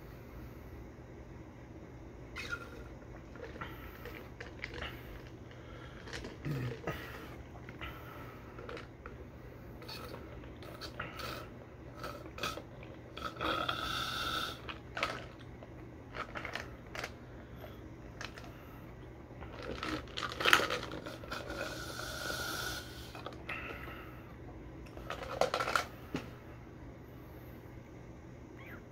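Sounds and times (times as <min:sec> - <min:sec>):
sipping and swallowing: 0:02.4 - 0:17.2.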